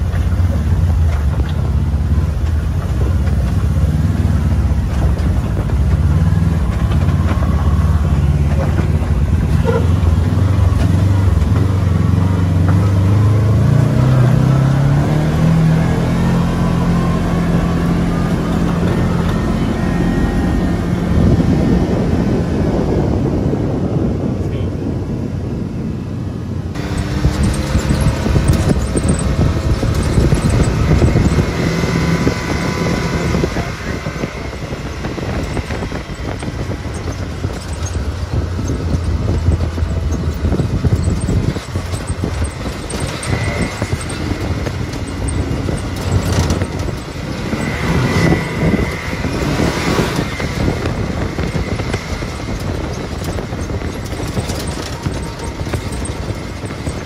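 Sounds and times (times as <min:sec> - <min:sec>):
vehicle knocks and rattles: 0:00.0 - 0:15.0, 0:26.7 - 0:57.0
tyre noise on dirt: 0:00.0 - 0:21.8, 0:26.8 - 0:57.0
vehicle engine running: 0:00.0 - 0:57.0.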